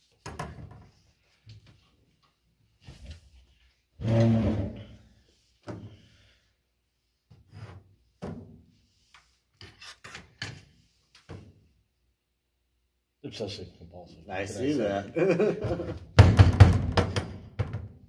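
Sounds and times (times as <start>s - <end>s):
knocks and scrapes of tools on table: 7.3s - 8.5s, 9.1s - 11.6s.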